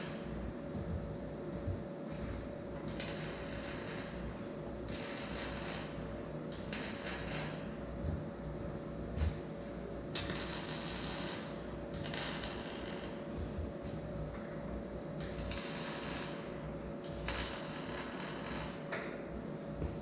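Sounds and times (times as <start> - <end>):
arc welding crackling hiss: 0.0 - 0.6, 2.9 - 7.9, 10.1 - 13.6, 15.2 - 18.9
steady low hum: 0.0 - 20.0.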